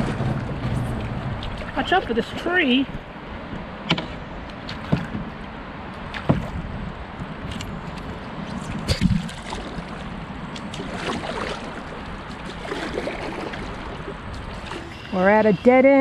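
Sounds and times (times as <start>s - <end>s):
paddle splashing in water: 0.0s - 2.5s, 3.8s - 15.4s.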